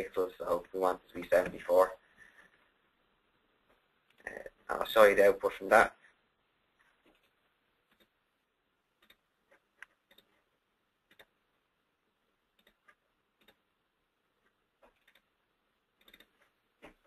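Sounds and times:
faint computer mouse clicks: 16.0 - 16.4.

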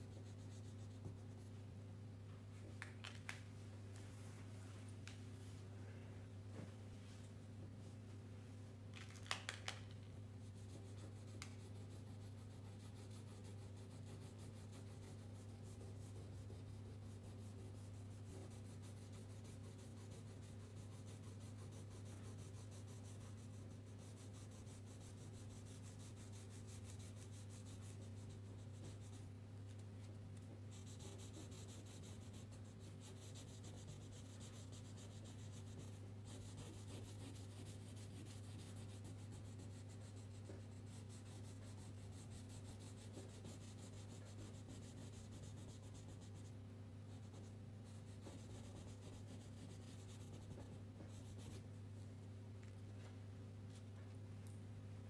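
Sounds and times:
steady low hum: 10.0 - 55.0
coloring strokes scratching paper: 10.4 - 29.8, 30.7 - 46.5, 47.1 - 51.7.

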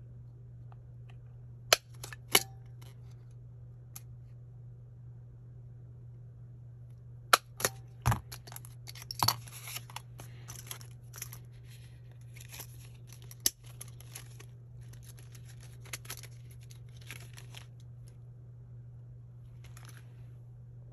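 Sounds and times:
pages and plastic cover rustling: 8.1 - 18.2, 19.5 - 20.3.

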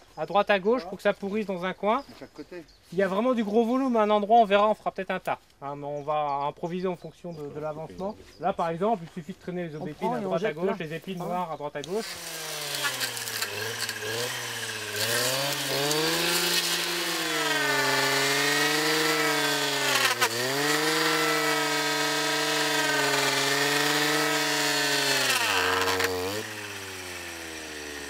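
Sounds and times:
brush cutter engine revving: 11.8 - 28.0.

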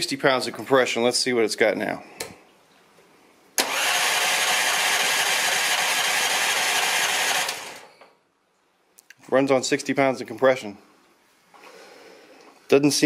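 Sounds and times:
engine cranking by starter motor: 3.6 - 7.9.

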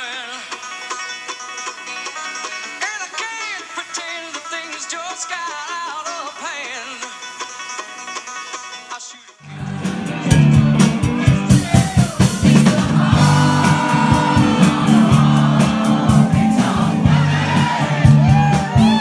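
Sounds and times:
live band playing: 9.4 - 19.0.

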